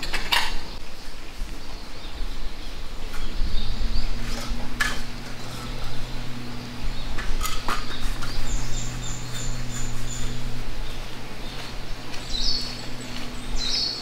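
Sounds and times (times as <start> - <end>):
high bird calls: 2.0 - 14.0
steady low hum: 2.8 - 14.0.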